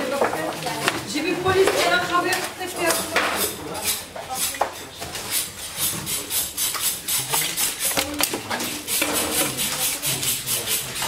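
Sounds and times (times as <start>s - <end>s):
knife sawing through fish: 2.9s - 8.0s, 8.6s - 11.0s.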